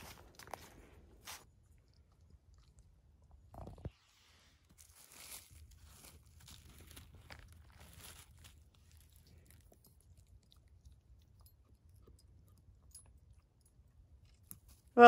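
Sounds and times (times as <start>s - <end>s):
dry needles crunching and rustling: 3.6s - 10.7s.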